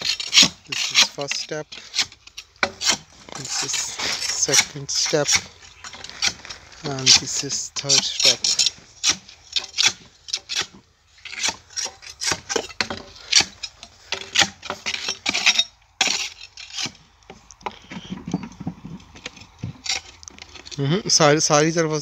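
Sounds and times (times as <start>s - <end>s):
hand tool scraping and knocking: 0.0s - 20.9s.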